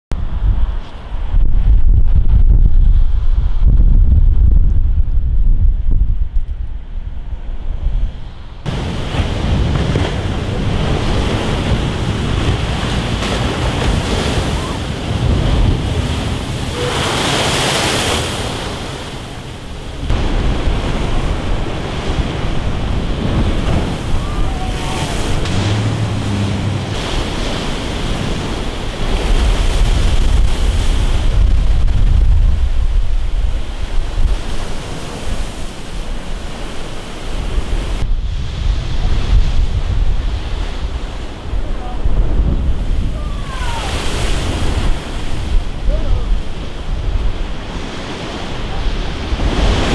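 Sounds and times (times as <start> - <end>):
wind rumbling on microphone: 0.1 - 49.9
sea surf breaking: 8.2 - 49.9.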